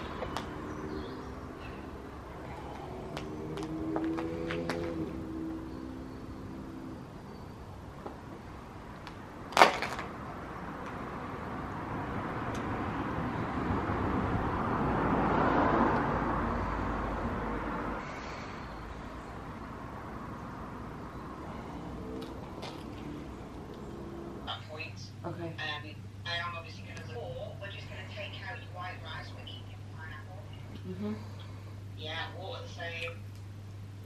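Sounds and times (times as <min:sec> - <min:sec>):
road vehicle passing: 0:00.0 - 0:32.8.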